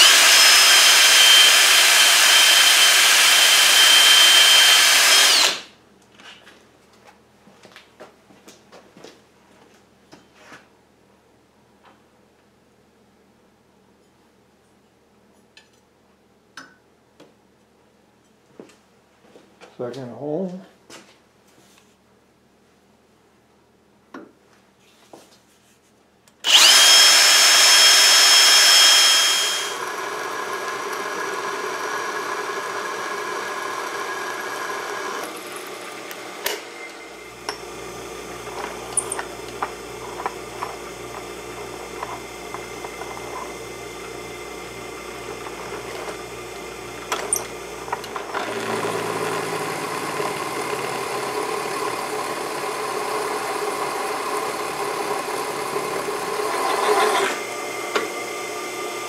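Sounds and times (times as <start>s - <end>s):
drill motor whine: 0.0s - 5.7s, 26.4s - 59.0s
drill press humming and chattering: 0.0s - 5.7s, 26.4s - 59.0s.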